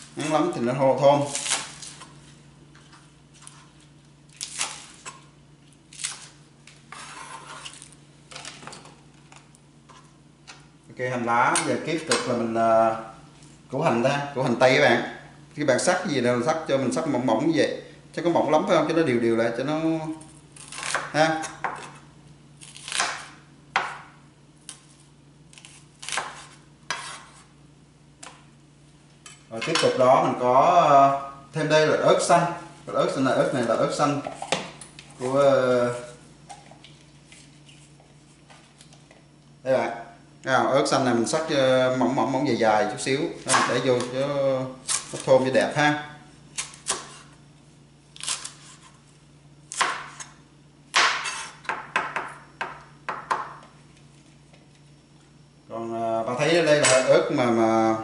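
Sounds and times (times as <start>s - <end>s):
knife slicing on cutting board: 25.6s - 27.5s, 51.1s - 51.6s.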